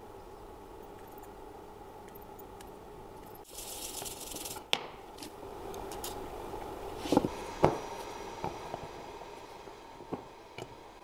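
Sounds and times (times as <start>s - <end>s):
aerosol spray can hissing: 3.5s - 4.6s.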